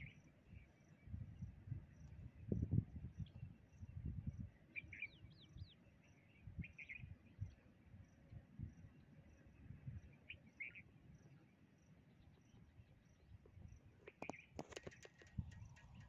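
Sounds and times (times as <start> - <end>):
wind rumble on microphone: 0.0 - 11.4, 12.1 - 16.0
insect chirping: 0.0 - 16.0
bird chirps: 4.6 - 7.6, 9.0 - 11.3.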